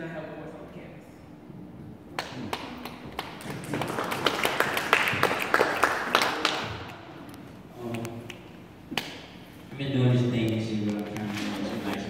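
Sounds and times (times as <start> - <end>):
audience applauding: 2.2 - 7.0.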